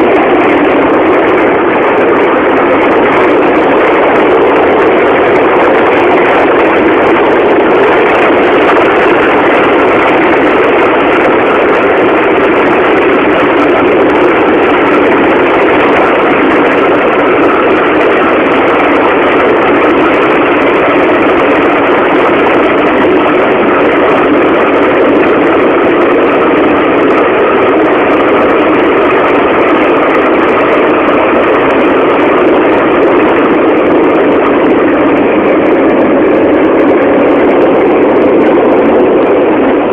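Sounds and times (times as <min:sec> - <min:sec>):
subway train running: 0:00.0 - 0:39.9.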